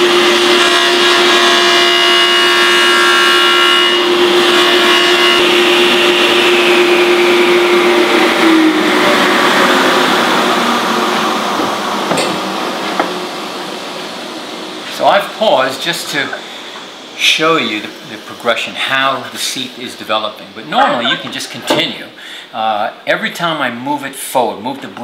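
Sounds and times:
table saw cutting wood: 0:00.0 - 0:14.2
saw blade whining down: 0:15.0 - 0:21.5.

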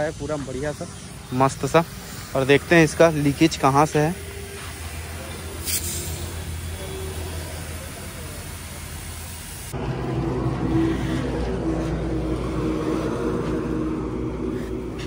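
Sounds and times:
compressed air hissing: 0:00.0 - 0:15.0
motor hum: 0:09.7 - 0:15.0.

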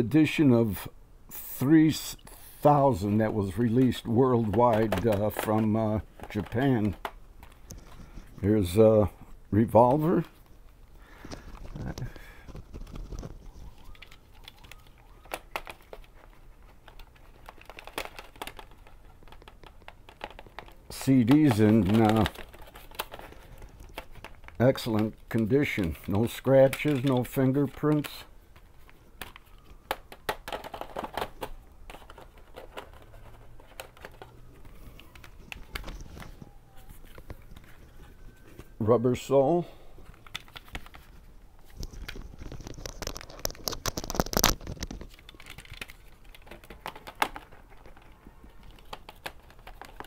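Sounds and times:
plastic case clacks: 0:02.9 - 0:08.5, 0:11.2 - 0:38.7, 0:40.1 - 0:50.0
plastic packaging clicks and taps: 0:03.7 - 0:08.1, 0:11.2 - 0:25.5, 0:26.6 - 0:37.9, 0:40.1 - 0:50.0.

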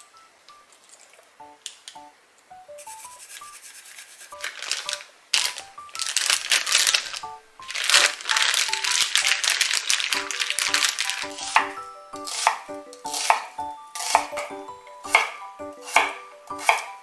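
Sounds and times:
light background music: 0:00.0 - 0:17.0
plastic bag crinkling: 0:03.2 - 0:11.7.

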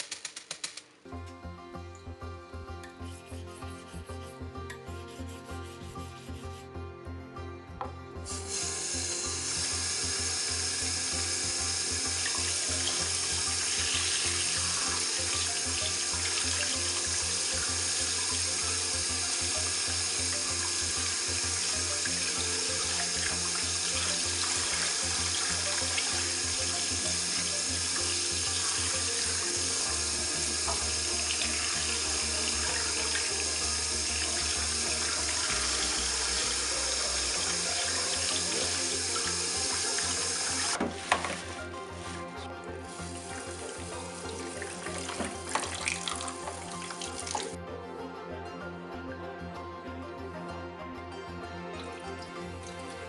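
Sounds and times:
tap water running into bowl: 0:08.3 - 0:42.2, 0:42.9 - 0:47.6.

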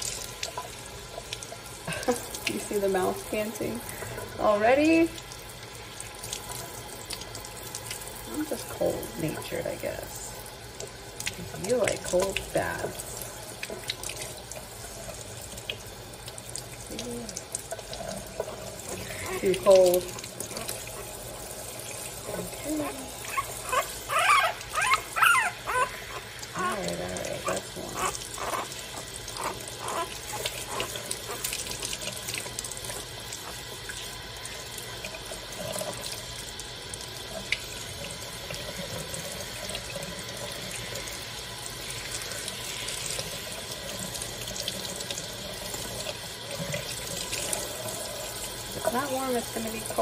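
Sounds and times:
sink sprayer water running: 0:00.0 - 0:50.0
puppy whimpering: 0:22.3 - 0:31.5
puppy squealing: 0:22.8 - 0:31.5.

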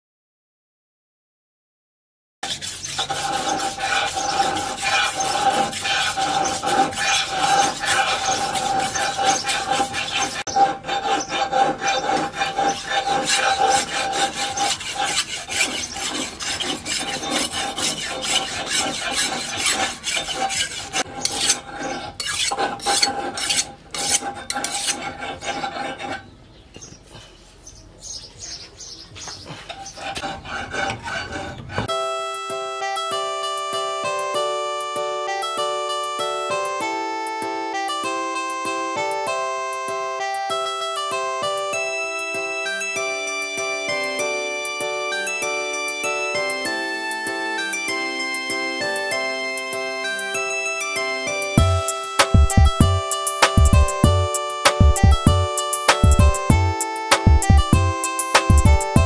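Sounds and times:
knife scraping on sharpening stone: 0:02.4 - 0:26.3, 0:29.6 - 0:31.9.

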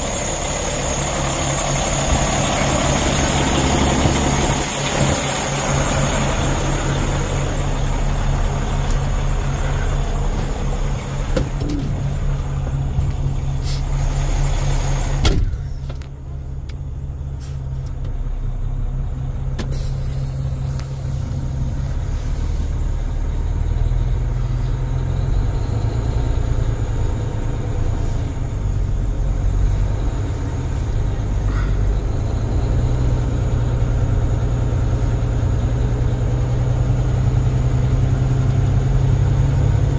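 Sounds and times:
diesel truck idling: 0:00.0 - 0:39.9
cab door shutting: 0:10.3 - 0:12.4, 0:15.1 - 0:16.2.

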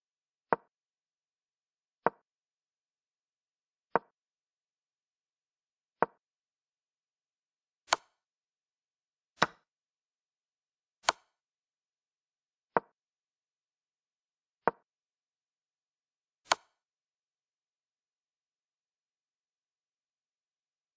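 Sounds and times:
wooden chess piece clicks: 0:07.9 - 0:08.2, 0:09.4 - 0:09.6, 0:11.0 - 0:11.4, 0:16.5 - 0:16.8.

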